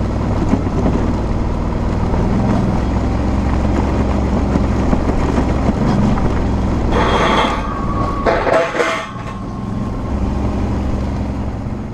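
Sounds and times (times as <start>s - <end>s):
motorcycle engine running: 0.0s - 7.9s
mechanical rattle and squeal: 5.5s - 11.7s.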